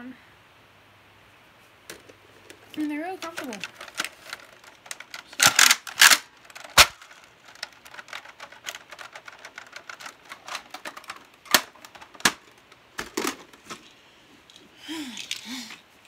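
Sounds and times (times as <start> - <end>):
plastic toy clicking and clacking: 1.9 - 13.5.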